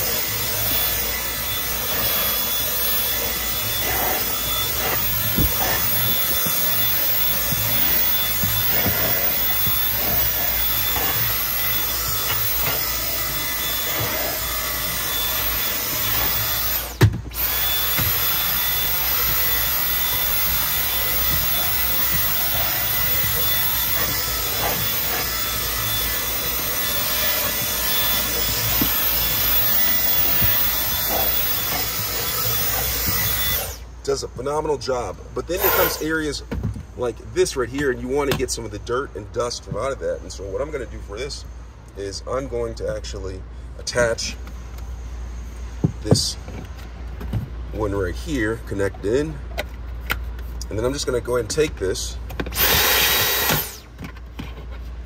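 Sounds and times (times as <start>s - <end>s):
vacuum cleaner running: 0.0s - 33.8s, 35.6s - 36.1s, 52.5s - 53.9s.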